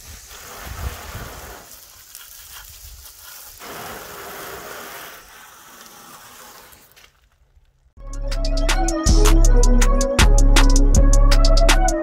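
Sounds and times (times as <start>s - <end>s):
hose spray spattering on metal: 0.0s - 1.9s, 3.6s - 7.0s.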